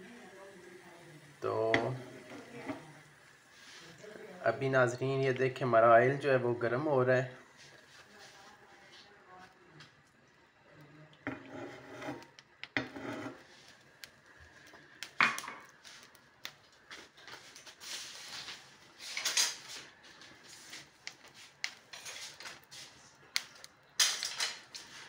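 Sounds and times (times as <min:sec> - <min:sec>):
rustling noise: 0:07.4 - 0:09.1, 0:15.8 - 0:23.0
metal pan and utensils clattering: 0:24.0 - 0:24.7.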